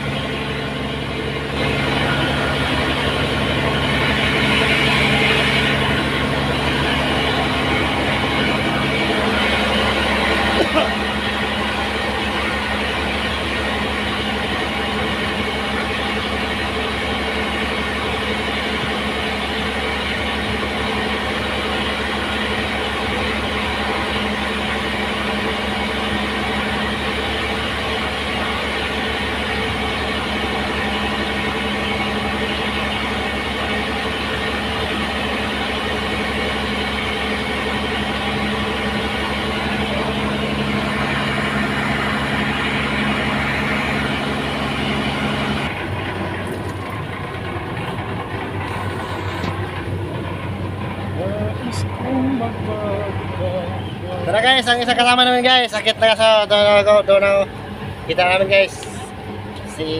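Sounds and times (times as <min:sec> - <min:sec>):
engine running steadily: 0:00.0 - 0:59.9.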